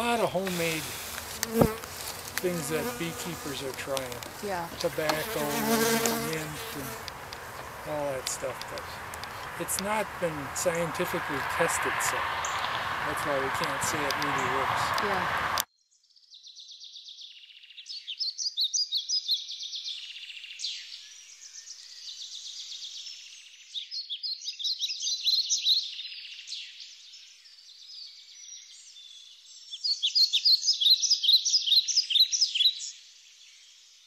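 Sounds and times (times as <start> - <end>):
birds chirping: 0.0 - 15.6.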